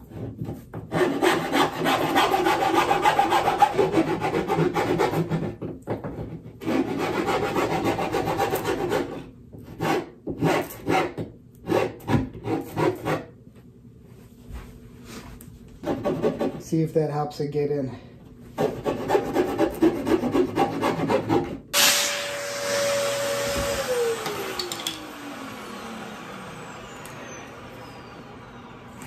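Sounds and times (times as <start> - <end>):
steel file rasping wood: 0.0 - 13.3, 15.8 - 16.8, 18.6 - 21.6.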